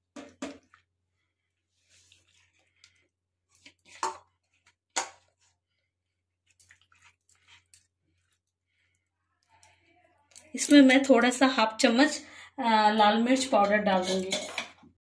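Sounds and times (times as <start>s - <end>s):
hand squelching paste into fish: 0.7s - 9.7s.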